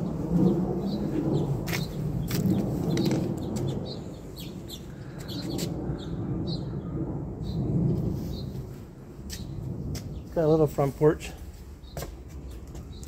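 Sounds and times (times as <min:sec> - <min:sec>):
wind buffeting microphone: 0:00.0 - 0:13.0
small birds chirping: 0:00.4 - 0:08.6, 0:11.6 - 0:13.0.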